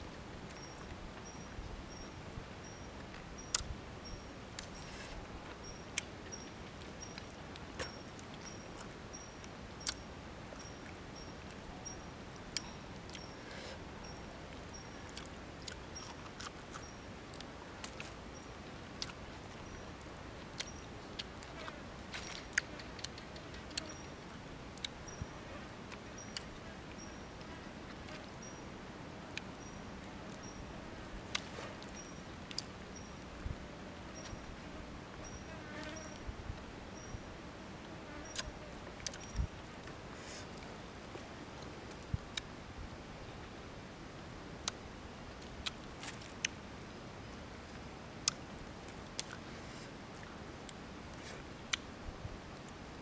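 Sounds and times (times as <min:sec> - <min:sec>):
background hiss: 0:00.0 - 0:53.0
mouth clicks and smacks: 0:44.6 - 0:44.8, 0:48.2 - 0:48.4.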